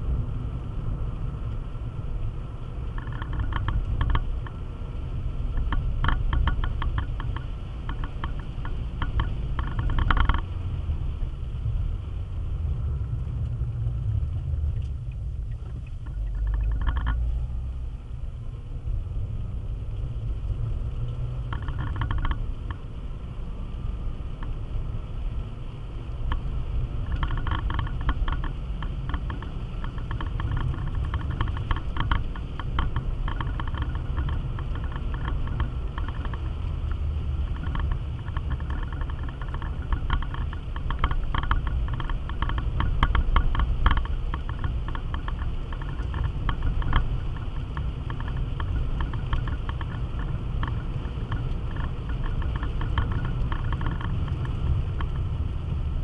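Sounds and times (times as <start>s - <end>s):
car engine and tyres rumbling: 0.0s - 56.0s
light rattling clicks: 2.8s - 4.6s, 5.4s - 10.6s, 14.7s - 17.2s, 21.1s - 22.8s, 26.1s - 55.8s.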